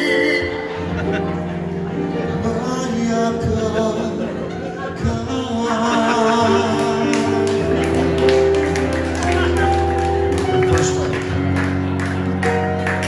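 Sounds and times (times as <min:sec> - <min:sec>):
man singing into a microphone: 0:00.0 - 0:00.8, 0:02.1 - 0:08.1
piano accompaniment: 0:00.0 - 0:13.0.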